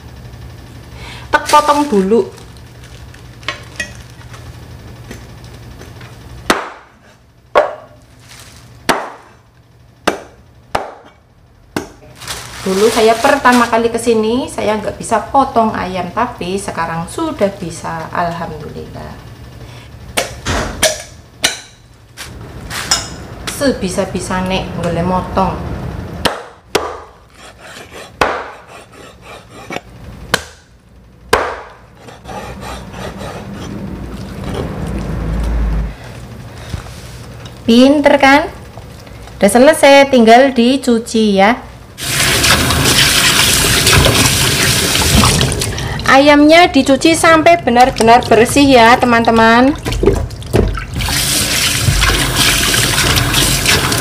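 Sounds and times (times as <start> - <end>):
cleaver chopping on wood block: 6.5 - 6.9, 8.9 - 9.2, 10.0 - 11.1, 11.8 - 12.0, 26.2 - 27.1, 28.2 - 28.7, 30.3 - 30.6, 31.3 - 31.8
cleaver chopping chicken: 26.2 - 29.4.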